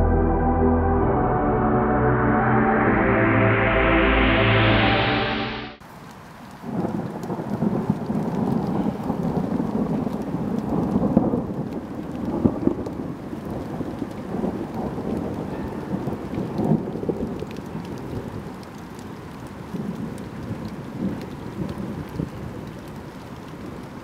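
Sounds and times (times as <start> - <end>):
rain falling: 2.5 - 24.0
low rumble of thunder: 6.6 - 18.6.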